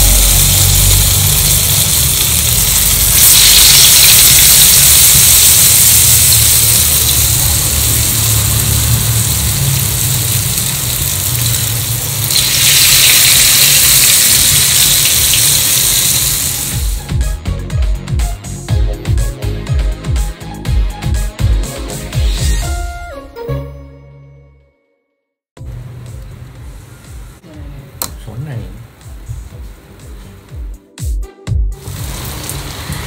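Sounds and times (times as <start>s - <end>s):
food sizzling in hot oil: 0.0s - 17.1s, 31.8s - 33.0s
music: 0.0s - 33.0s.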